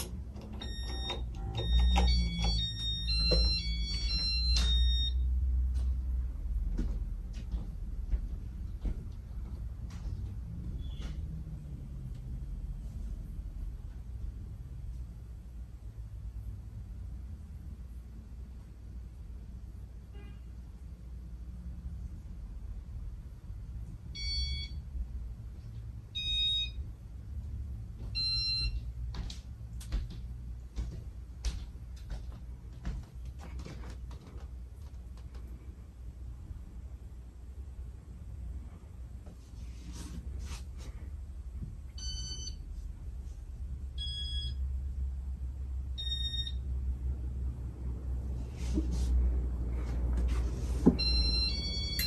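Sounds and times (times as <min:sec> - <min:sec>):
ceiling fan hum: 0:00.0 - 0:52.0
short electronic beeps: 0:44.0 - 0:44.6, 0:46.0 - 0:46.6.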